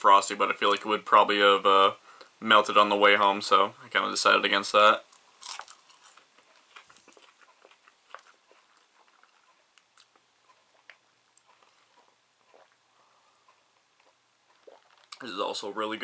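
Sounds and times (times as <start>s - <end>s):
chewing fries: 5.0s - 15.2s.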